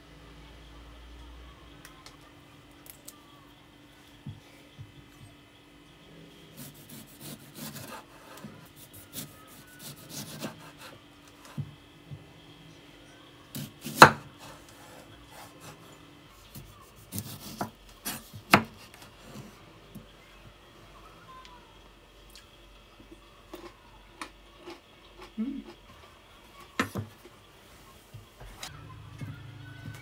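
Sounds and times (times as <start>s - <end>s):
faint steady hum: 0.0s - 30.0s
knife chopping on wooden board: 17.1s - 18.9s.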